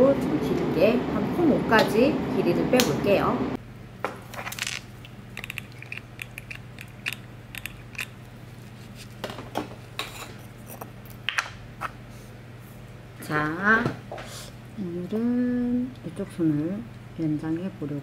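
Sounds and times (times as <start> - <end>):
jar lid twisting clicks: 5.4 - 8.1.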